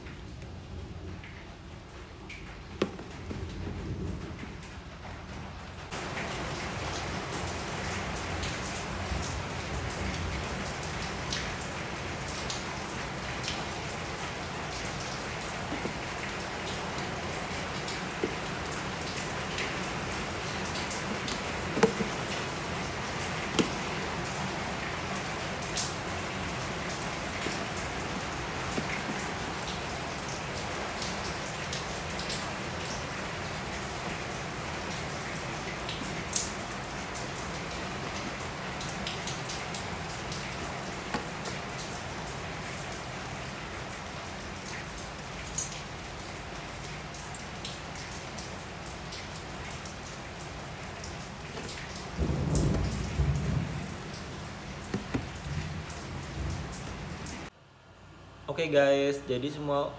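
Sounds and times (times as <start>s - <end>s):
steady rain hiss: 0.0s - 59.9s
plastic tubs knocking and rustling: 2.6s - 4.4s, 15.6s - 17.0s, 17.9s - 24.5s, 26.7s - 29.6s, 40.6s - 41.6s, 51.5s - 53.2s, 54.8s - 55.7s.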